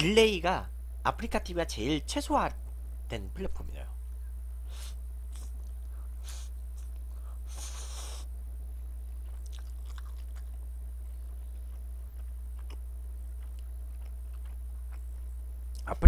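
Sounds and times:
steady low hum: 0:00.0 - 0:16.0
soft chewing: 0:05.3 - 0:08.2, 0:08.8 - 0:16.0.

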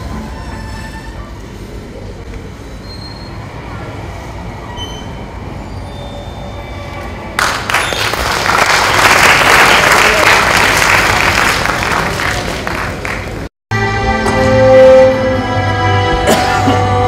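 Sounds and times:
faint high squealing tones: 0:00.0 - 0:01.8, 0:02.6 - 0:03.8, 0:04.6 - 0:07.2
applause: 0:07.4 - 0:13.5.

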